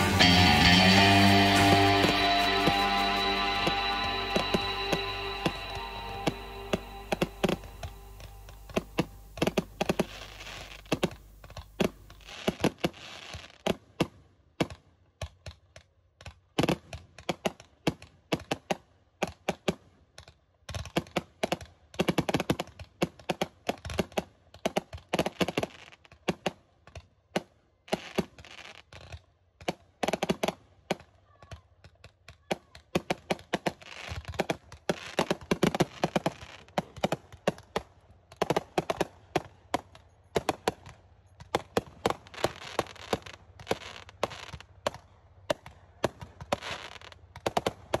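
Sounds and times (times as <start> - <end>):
music: 0.0 - 9.9
fireworks crackling: 0.0 - 13.8, 33.0 - 37.8, 38.4 - 45.0, 46.0 - 48.0.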